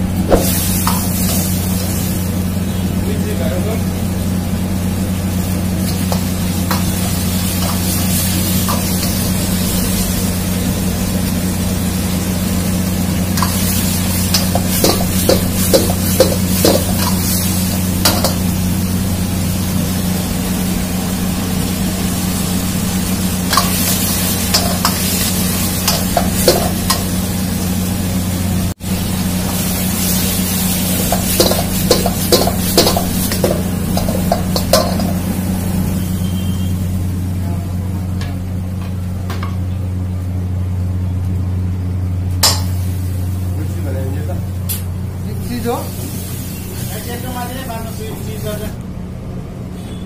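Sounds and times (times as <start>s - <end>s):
food sizzling in a wok: 0.0s - 37.4s, 42.0s - 48.7s
ladle clanking and scraping wok: 0.2s - 2.4s, 5.6s - 10.0s, 13.3s - 18.9s, 23.3s - 27.4s, 29.4s - 36.7s, 42.4s - 43.2s.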